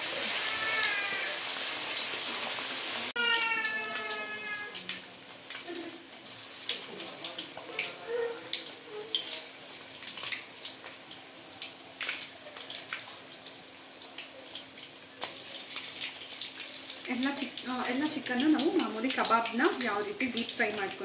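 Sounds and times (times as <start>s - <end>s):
chicken deep-frying in oil: 0.0s - 21.0s.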